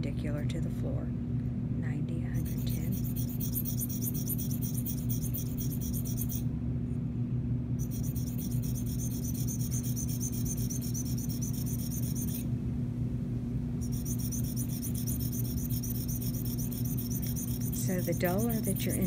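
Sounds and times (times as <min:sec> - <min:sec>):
low hum: 0:00.0 - 0:19.0
sharpening stone scraping blade: 0:02.4 - 0:06.4, 0:07.8 - 0:12.4, 0:13.8 - 0:19.0.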